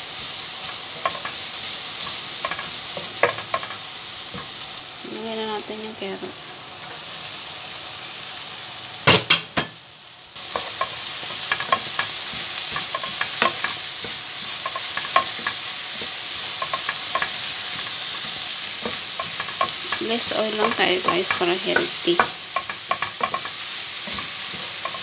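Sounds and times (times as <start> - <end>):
vegetables sizzling in oil: 0.0 - 25.0
wooden spoon scraping a pan: 0.2 - 4.6, 10.4 - 25.0.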